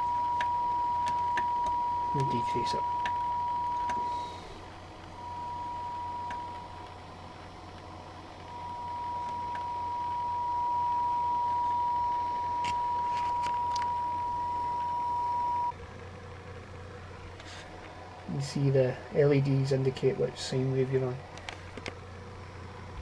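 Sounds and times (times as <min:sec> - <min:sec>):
high-pitched pure tone: 0:00.0 - 0:15.8.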